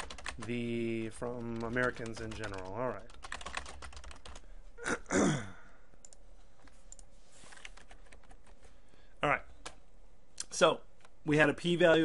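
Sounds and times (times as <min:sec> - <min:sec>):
computer keys clicking: 0:00.0 - 0:00.6, 0:01.2 - 0:04.4, 0:06.0 - 0:06.2, 0:06.9 - 0:08.6
person sighing: 0:04.8 - 0:05.9.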